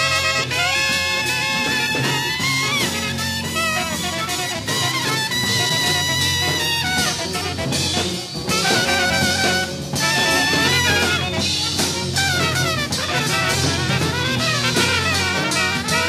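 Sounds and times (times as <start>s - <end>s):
drums: 0.0s - 16.0s
saxophone: 0.0s - 16.0s
trumpet: 0.0s - 16.0s.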